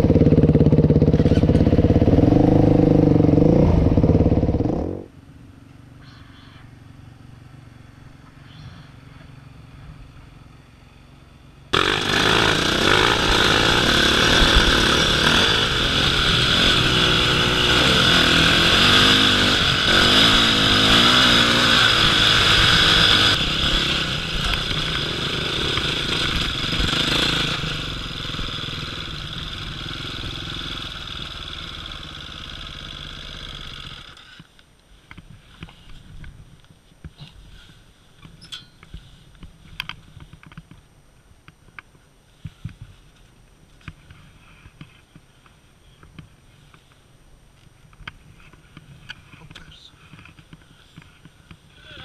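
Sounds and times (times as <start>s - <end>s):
dirt bike engine revving: 0.0s - 5.1s, 11.8s - 34.3s.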